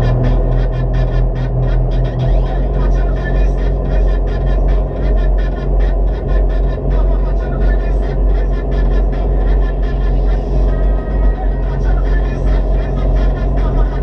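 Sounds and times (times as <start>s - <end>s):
speedboat engines droning: 0.0s - 14.0s.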